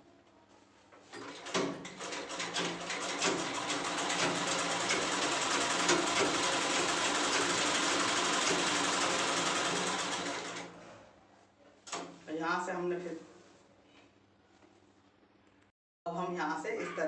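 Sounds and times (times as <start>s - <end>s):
sewing machine stitching: 1.1s - 10.8s.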